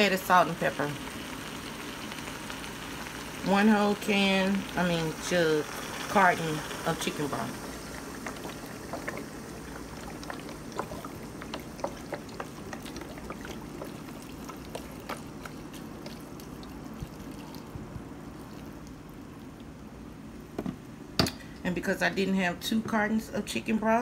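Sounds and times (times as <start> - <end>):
broth pouring into a pot: 0.0 - 19.8
small clicks and splashes: 8.2 - 19.8.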